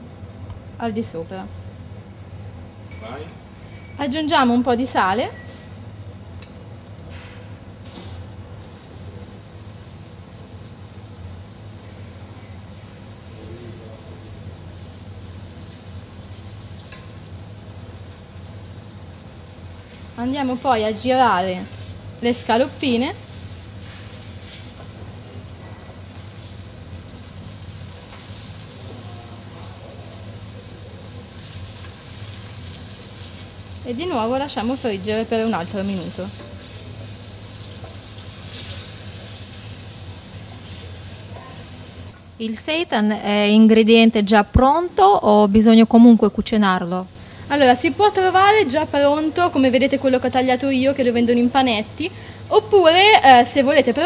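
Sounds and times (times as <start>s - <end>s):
food sizzling in a pan: 3.4s - 43.2s, 45.8s - 54.0s.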